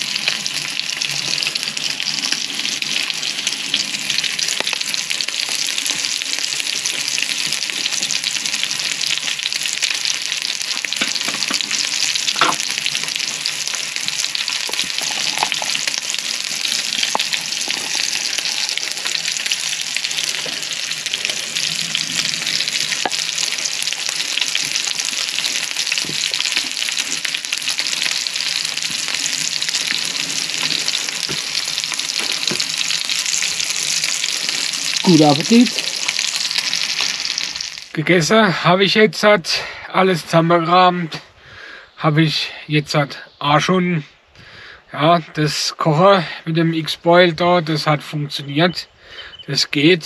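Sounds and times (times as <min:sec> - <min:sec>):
steak sizzling in a pan: 0:00.0 - 0:37.9.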